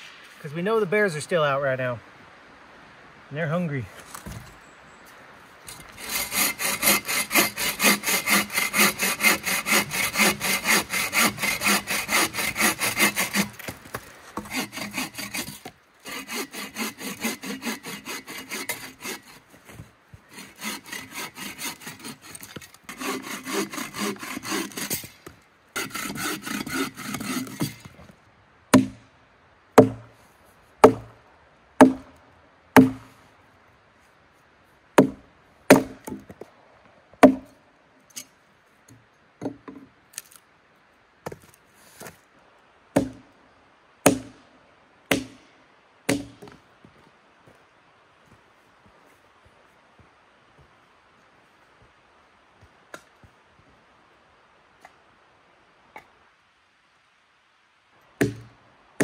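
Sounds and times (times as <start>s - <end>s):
hand saw cutting wood: 5.7s - 19.4s, 20.2s - 25.2s, 25.8s - 27.9s
chopping blows into wood: 32.8s - 33.1s.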